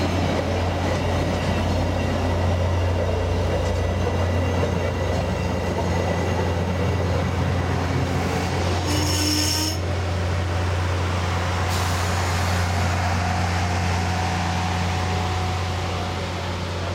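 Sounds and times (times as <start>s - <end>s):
train rolling on rails: 0.0s - 16.9s
train wheel squeal: 8.7s - 9.9s.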